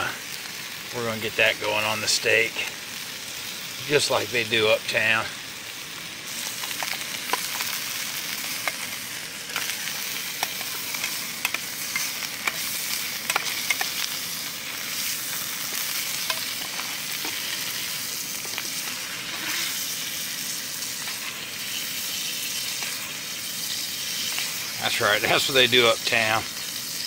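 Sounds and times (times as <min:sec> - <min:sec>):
steak sizzling in a pan: 0:00.0 - 0:27.0
metal spoon scraping pan: 0:15.0 - 0:19.8.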